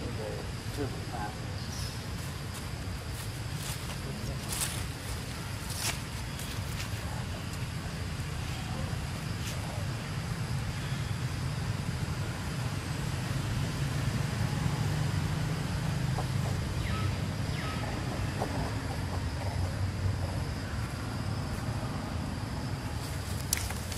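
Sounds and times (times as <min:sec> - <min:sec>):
low outdoor rumble: 0:00.0 - 0:23.9.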